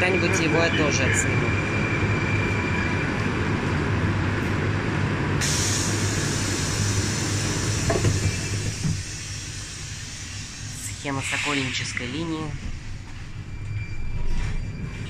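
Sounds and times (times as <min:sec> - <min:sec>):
train equipment humming: 0:00.0 - 0:15.0
pneumatic air hiss: 0:05.4 - 0:11.9.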